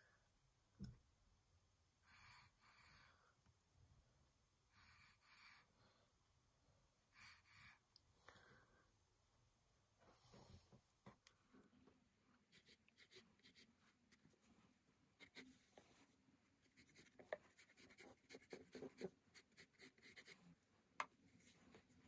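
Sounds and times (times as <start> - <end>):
pencil scratching on paper: 12.5 - 14.3, 15.2 - 15.7, 16.6 - 20.5.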